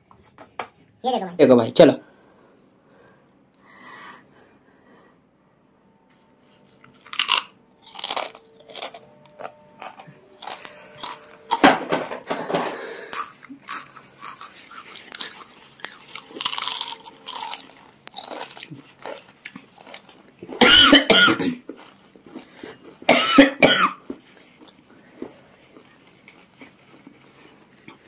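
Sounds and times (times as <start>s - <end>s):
chips crunching while chewed: 6.5s - 11.8s, 12.4s - 21.0s, 21.6s - 23.1s, 24.0s - 28.0s.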